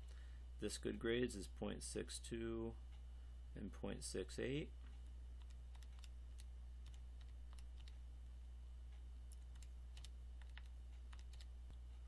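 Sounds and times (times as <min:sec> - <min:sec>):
low electrical hum: 0:00.0 - 0:12.0
calculator keys clicking: 0:09.3 - 0:11.5.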